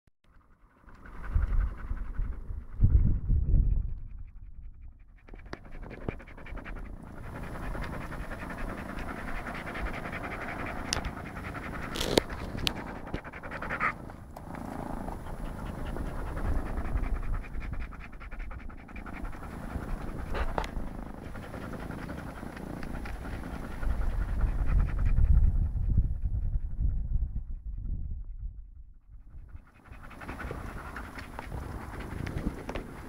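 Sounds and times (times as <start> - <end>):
dog panting: 0.8 - 27.4, 29.3 - 33.0.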